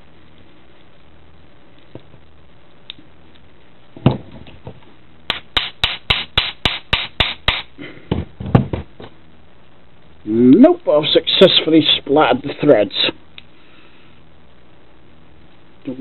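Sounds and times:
sharp knock: 5.3 - 7.7.

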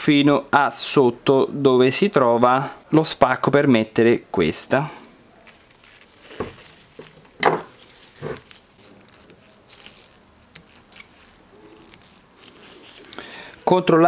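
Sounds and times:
metal clip clicks and scrapes: 9.7 - 12.2.

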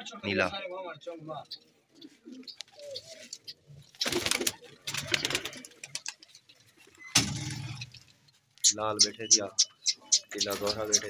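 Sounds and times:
pigeons rustling and scuffing: 1.6 - 8.6
pigeon cooing: 2.0 - 6.0.

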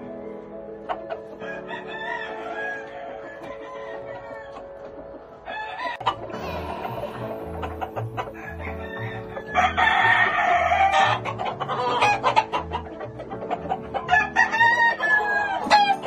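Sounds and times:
rooster crowing: 5.5 - 7.1, 8.2 - 11.2.

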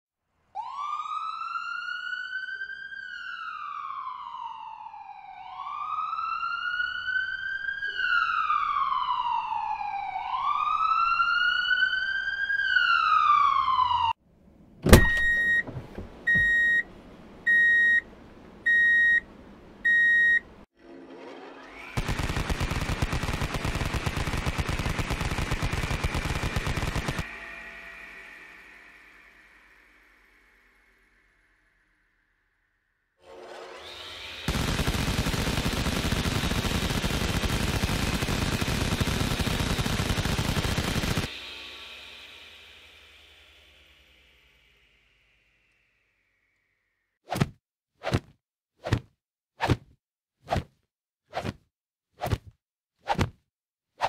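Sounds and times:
siren wailing: 0.6 - 14.2
short electronic beeps: 15.0 - 15.7, 16.3 - 16.8, 17.5 - 18.0, 18.7 - 19.2, 19.9 - 20.4
harsh rattling buzz: 34.0 - 45.6.

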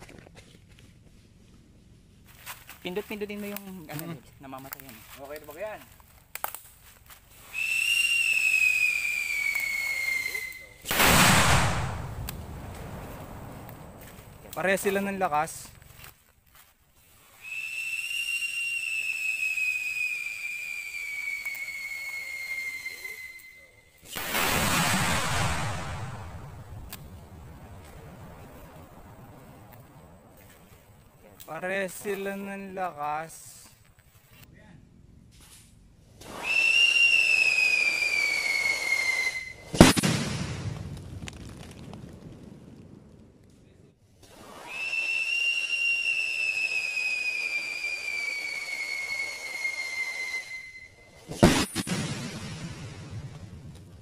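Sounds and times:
firecracker whistling: 7.3 - 14.8, 17.0 - 30.9, 36.2 - 40.7, 44.2 - 53.0.

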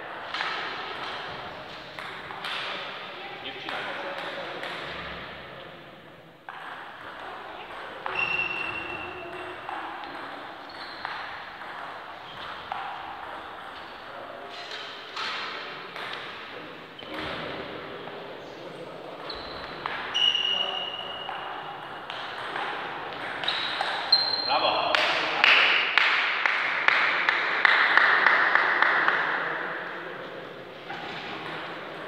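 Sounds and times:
short high squeaks: 8.1 - 9.2, 10.6 - 11.1, 19.2 - 21.3, 23.4 - 24.6.

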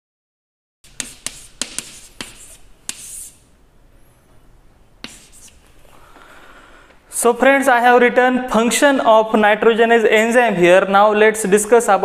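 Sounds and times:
chalk scraping on blackboard: 0.9 - 3.5, 5.0 - 5.6
chalk tapping on blackboard: 0.9 - 3.5, 5.0 - 5.6
faint room noise: 0.9 - 12.0.

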